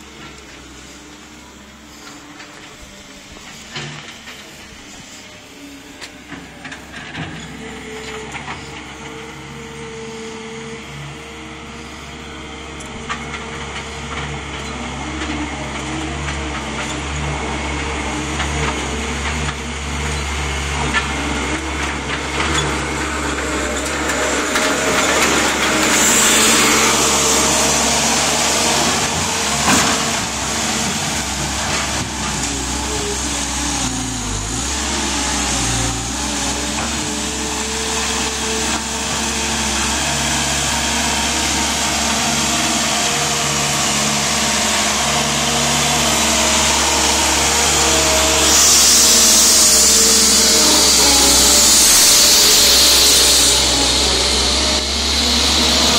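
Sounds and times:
diesel engine running: 0.0s - 55.9s
loud hiss: 23.6s - 55.9s.

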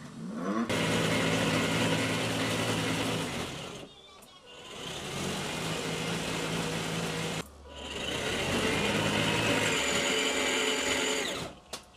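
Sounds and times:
electric motor and gearbox whirring: 0.7s - 3.9s, 4.6s - 11.6s.

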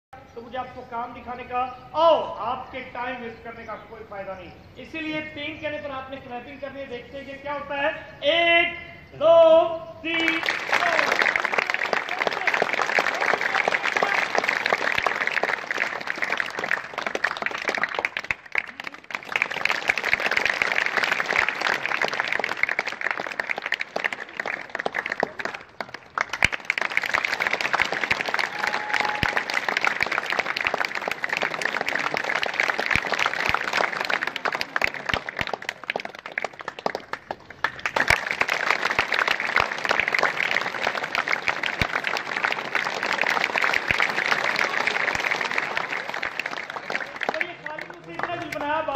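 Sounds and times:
children clapping and applauding: 10.2s - 48.9s.

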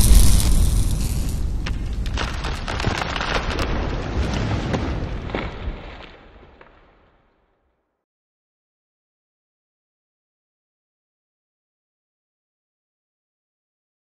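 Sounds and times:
low rushing noise with crackles: 0.0s - 6.8s.

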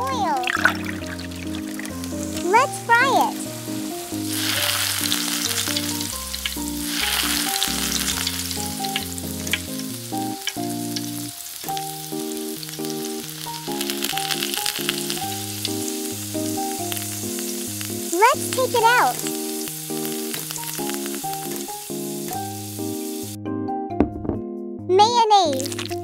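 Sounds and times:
food frying in hot oil: 0.0s - 23.4s, 25.6s - 26.0s
background music melody: 0.0s - 26.0s.

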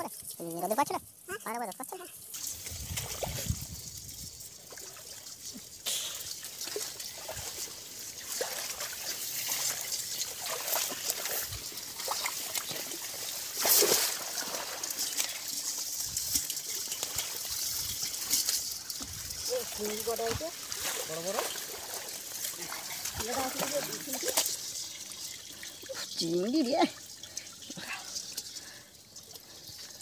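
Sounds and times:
water trickling and splashing: 0.0s - 30.0s.

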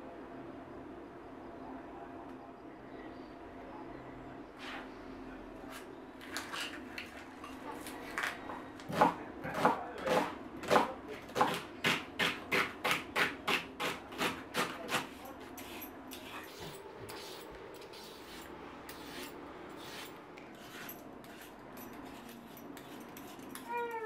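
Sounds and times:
knife chopping on wooden board: 8.9s - 15.2s.

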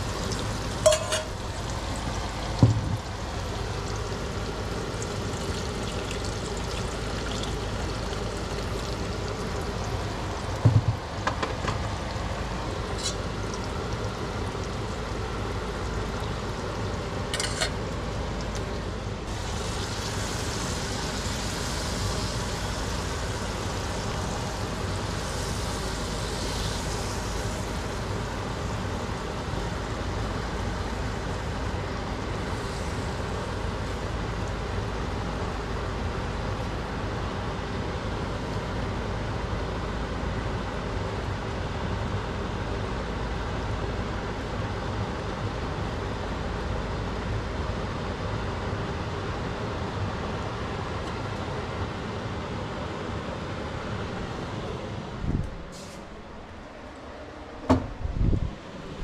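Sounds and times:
chicken sizzling in a frying pan: 0.0s - 10.7s, 19.3s - 31.5s, 32.2s - 34.0s.

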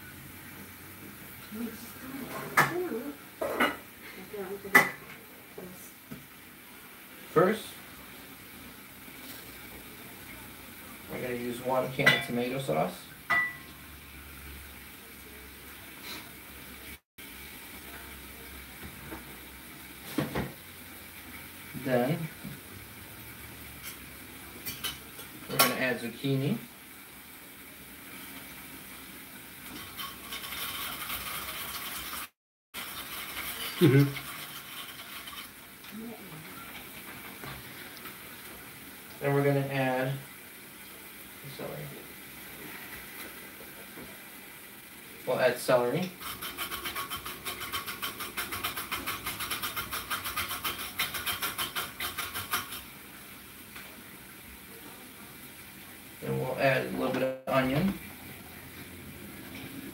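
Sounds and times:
hand-cranked food processor rattling: 46.2s - 52.8s.

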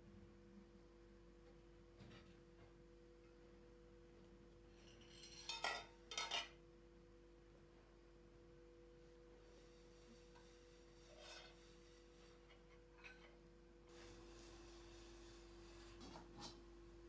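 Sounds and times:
faint steady hum: 0.0s - 17.0s
glass dishes clinking: 5.0s - 6.6s.

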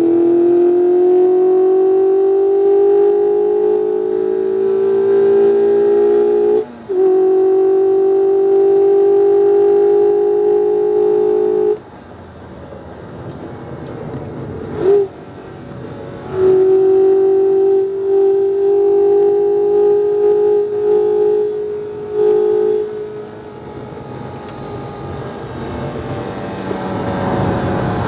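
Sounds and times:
car engine at full throttle: 0.0s - 28.0s
engine rev blip: 16.2s - 23.3s.

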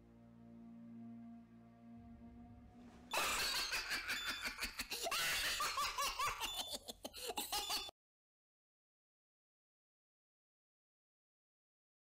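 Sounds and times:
low held music chord: 0.0s - 3.1s.

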